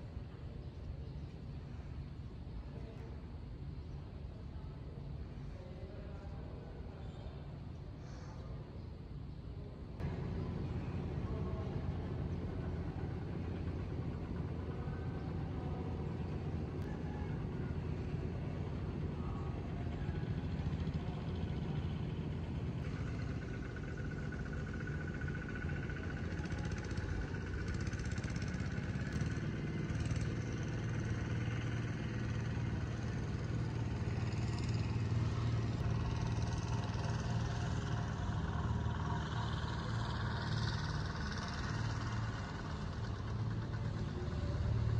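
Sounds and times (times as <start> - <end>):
steady low rumble: 9.6 - 26.1.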